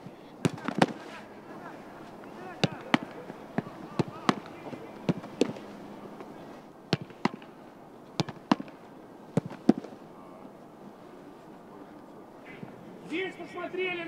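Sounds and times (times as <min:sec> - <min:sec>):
football thumping into gloves: 0:00.4 - 0:01.2, 0:02.6 - 0:06.3, 0:06.9 - 0:07.5, 0:08.2 - 0:10.0.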